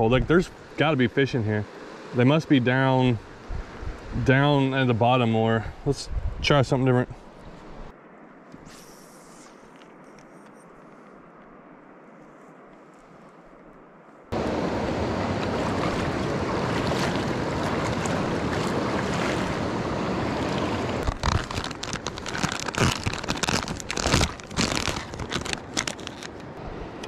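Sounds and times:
plastic package crinkling: 0:21.0 - 0:26.4.

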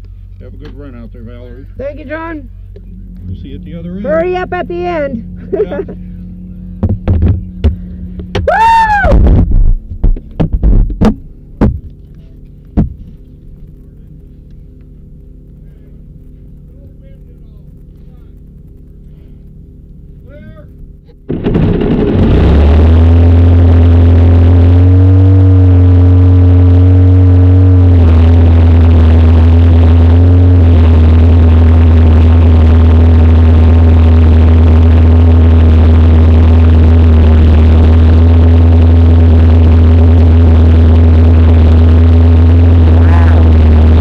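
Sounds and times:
motorcycle engine starting and revving: 0:21.0 - 0:44.0.

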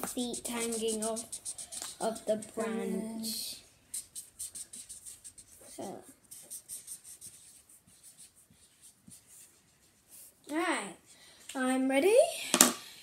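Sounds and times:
child voice: 0:00.0 - 0:01.3, 0:01.9 - 0:03.6, 0:05.7 - 0:06.2
highlighter scribbling on paper: 0:00.0 - 0:10.3.

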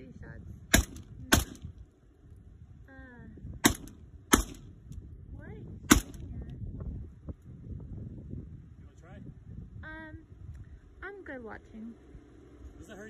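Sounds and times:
rifle shots: 0:00.7 - 0:01.7, 0:03.6 - 0:04.8, 0:05.9 - 0:06.3.

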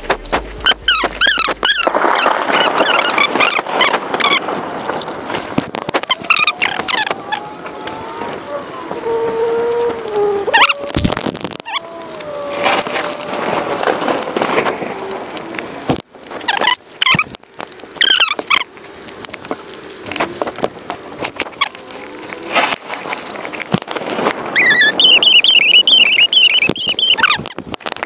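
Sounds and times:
rain hiss: 0:00.0 - 0:28.0.

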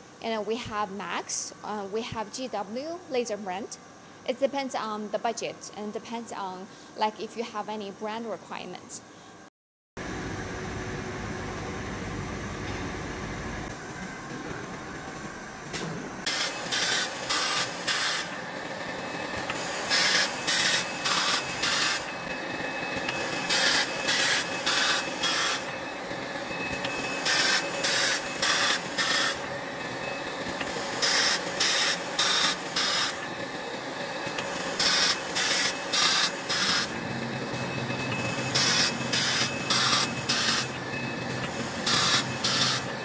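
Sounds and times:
steady machine hum: 0:00.0 - 0:43.0
laser welding hissing bursts: 0:16.3 - 0:18.4, 0:19.5 - 0:22.1, 0:23.2 - 0:25.7, 0:26.9 - 0:29.5, 0:30.7 - 0:33.2, 0:34.3 - 0:37.0, 0:38.2 - 0:40.7, 0:41.5 - 0:42.9.

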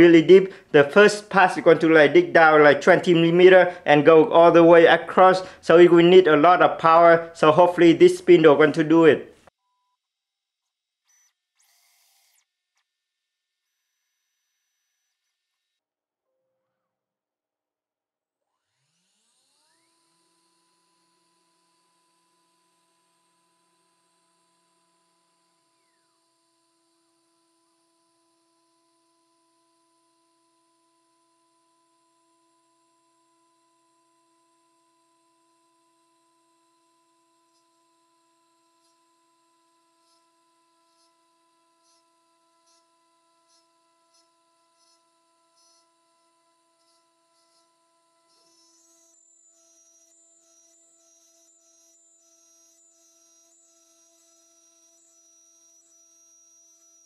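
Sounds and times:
spindle whine and high hum: 0:00.0 - 0:09.5, 0:29.6 - 0:57.0.

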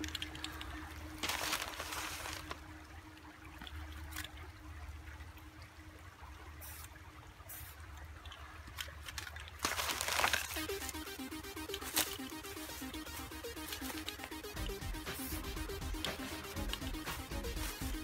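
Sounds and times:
spray paint cans hissing: 0:06.6 - 0:06.9, 0:07.5 - 0:07.8, 0:09.6 - 0:18.0.

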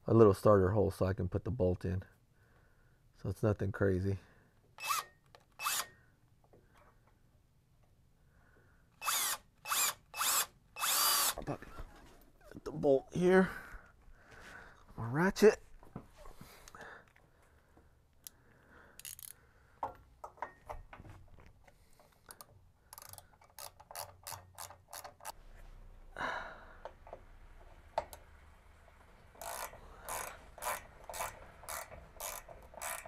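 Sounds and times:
ratchet wrench clicking: 0:04.8 - 0:05.9, 0:09.0 - 0:11.4, 0:19.0 - 0:19.4, 0:22.3 - 0:25.4, 0:29.4 - 0:33.0.

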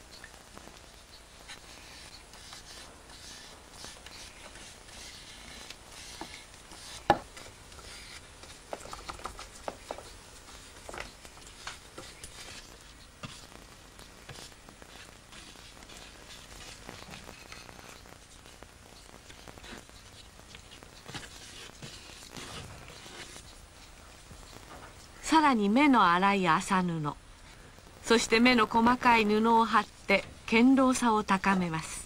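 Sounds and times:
spatula scraping: 0:01.4 - 0:18.2, 0:19.4 - 0:23.6
tool tapping: 0:07.0 - 0:07.4.

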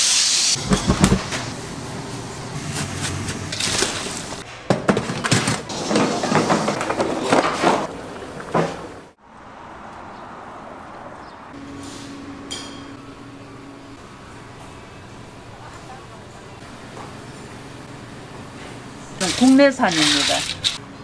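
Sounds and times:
utensils knocking and rattling: 0:19.2 - 0:20.8.

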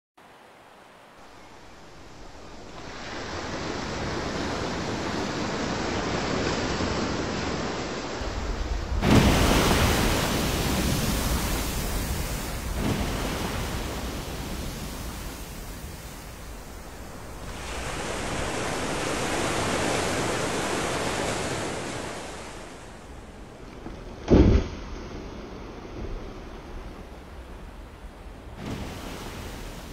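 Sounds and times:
wind and open sea: 0:00.2 - 0:29.9
whale splashing into water: 0:09.0 - 0:16.0, 0:28.6 - 0:29.9.

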